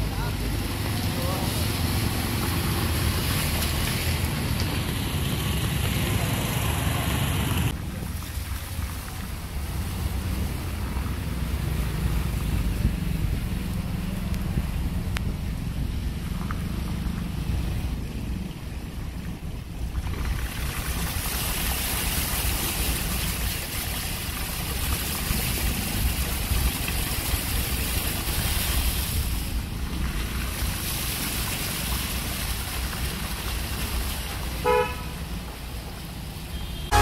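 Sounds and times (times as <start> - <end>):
light rain on water: 0.0 - 37.0
wind rumble on microphone: 7.4 - 23.7
vehicle horn toot: 34.6 - 35.1, 36.5 - 37.0.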